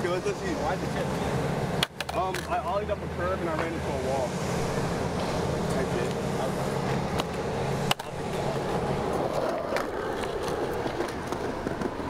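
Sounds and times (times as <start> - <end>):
skateboard wheels rolling on concrete: 0.0 - 12.0
skateboard clicks: 1.8 - 2.6, 7.2 - 12.0.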